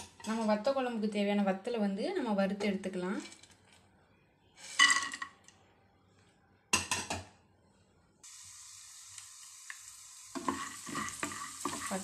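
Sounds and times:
oil sizzling: 0:08.2 - 0:12.0.

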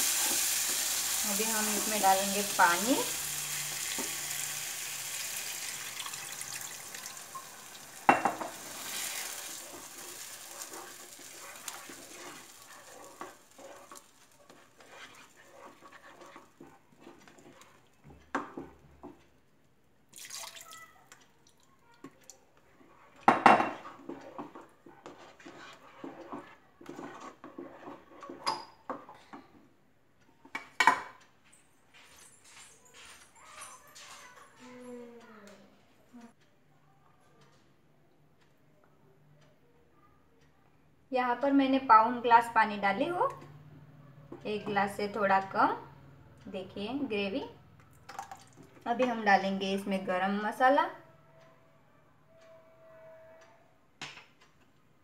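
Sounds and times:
water sizzling in hot pan: 0:00.0 - 0:15.0
ladle scraping pan: 0:05.2 - 0:17.8, 0:23.7 - 0:29.1.

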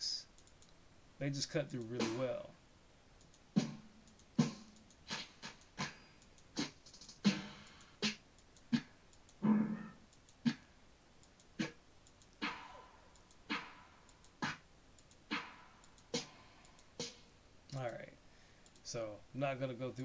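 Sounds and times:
snare drum hits: 0:02.0 - 0:02.4, 0:12.4 - 0:12.8, 0:15.3 - 0:16.4.

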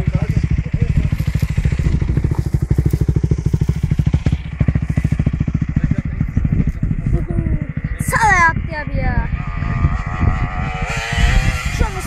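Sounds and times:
dirt bike engine running: 0:00.0 - 0:12.0.

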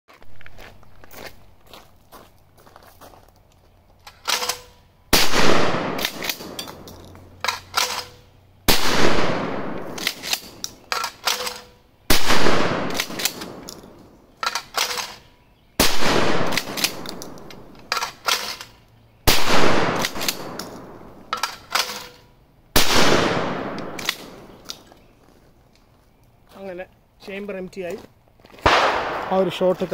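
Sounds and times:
shotgun shots: 0:04.2 - 0:06.8, 0:07.5 - 0:13.7, 0:15.8 - 0:18.6, 0:19.3 - 0:22.2, 0:22.8 - 0:24.6, 0:28.6 - 0:29.9.

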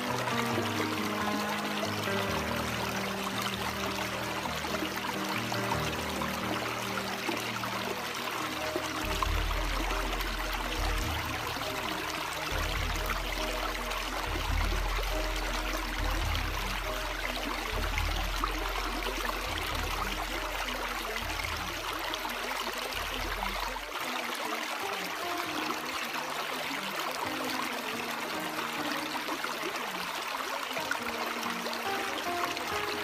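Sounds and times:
rushing water: 0:00.0 - 0:33.0.

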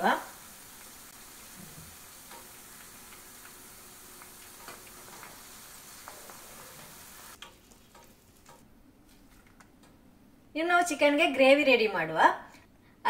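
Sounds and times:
onion sizzling in hot oil: 0:00.0 - 0:08.6
utensils clicking against pan: 0:07.3 - 0:08.6.

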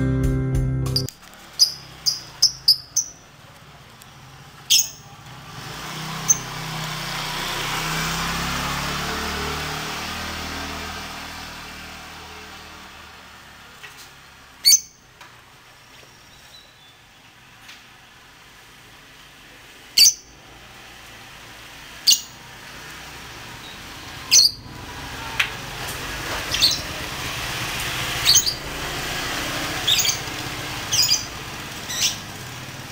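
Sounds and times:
lovebird chirping: 0:00.9 - 0:03.3, 0:04.7 - 0:05.1, 0:14.6 - 0:15.0, 0:20.0 - 0:20.4, 0:23.6 - 0:24.6, 0:28.2 - 0:28.6, 0:29.8 - 0:30.3, 0:30.9 - 0:31.3, 0:31.9 - 0:32.2.

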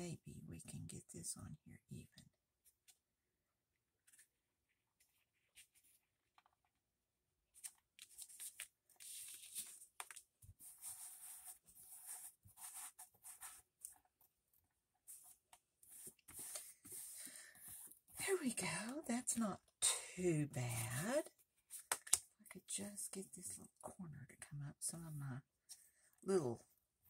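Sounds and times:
paper and fabric rustling: 0:07.5 - 0:14.2
fingers rubbing paper: 0:10.6 - 0:13.9.

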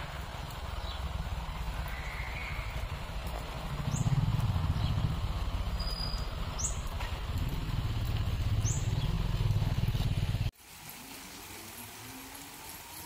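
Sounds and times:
low steady rumble: 0:00.0 - 0:10.5
sprinkler spraying water: 0:00.0 - 0:13.0
bird chirping: 0:00.7 - 0:07.1, 0:08.1 - 0:10.3.

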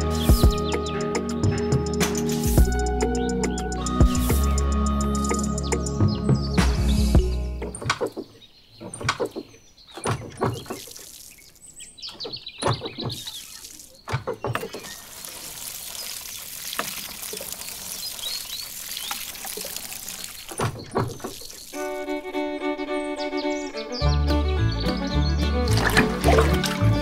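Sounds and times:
water splashing into pool: 0:10.0 - 0:22.2, 0:25.6 - 0:27.0
pump squeaking: 0:12.1 - 0:22.5, 0:25.5 - 0:27.0.

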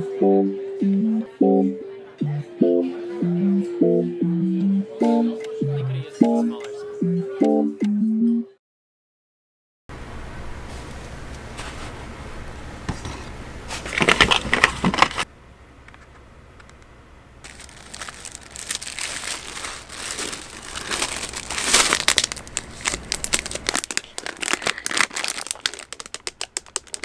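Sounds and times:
paper bag handled: 0:13.7 - 0:15.2, 0:17.5 - 0:27.0
plastic-wrapped box handled: 0:17.5 - 0:27.0
tissue paper crinkling: 0:17.5 - 0:27.0.

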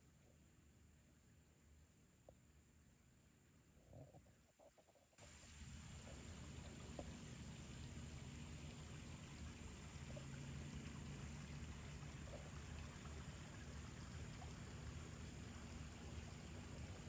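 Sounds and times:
creek water murmuring: 0:05.3 - 0:17.0.

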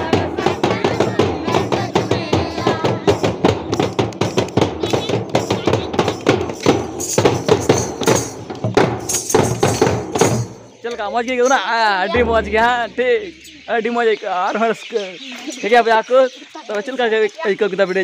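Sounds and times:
group singing: 0:00.0 - 0:03.0
drums beating fast rhythm: 0:00.0 - 0:11.2, 0:12.1 - 0:13.5.

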